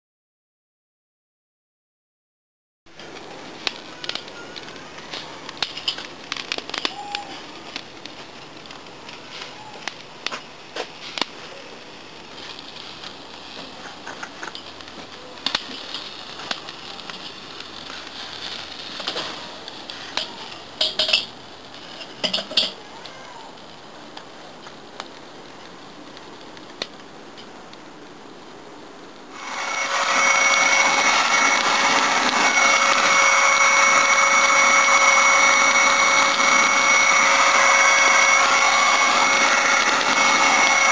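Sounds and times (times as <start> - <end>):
grill basket rattling on grate: 20.2 - 22.8
electric blower whirring: 29.4 - 40.9.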